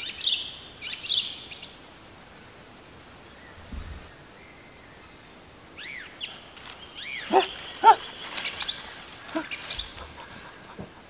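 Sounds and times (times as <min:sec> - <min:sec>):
thin high bird calls: 0:05.8 - 0:10.8.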